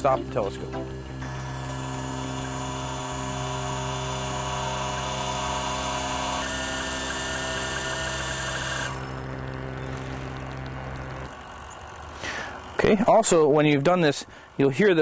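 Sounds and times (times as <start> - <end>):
telescope mount motor whine: 0.0 - 15.0.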